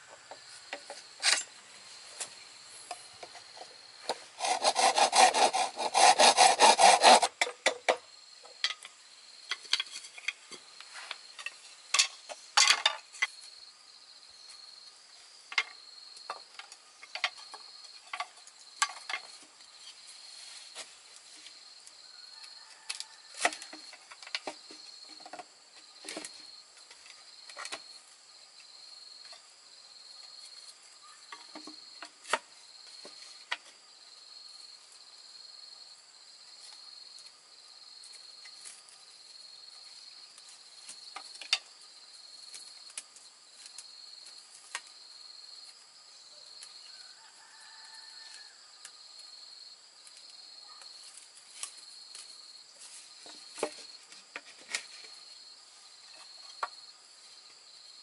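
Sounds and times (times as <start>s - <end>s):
bamboo poles and tools knocking: 0.0s - 1.6s, 2.2s - 13.4s, 15.5s - 19.6s, 22.4s - 27.9s, 31.3s - 33.8s, 40.8s - 41.7s, 53.2s - 55.2s, 56.0s - 56.8s
insects chirping: 0.0s - 58.0s.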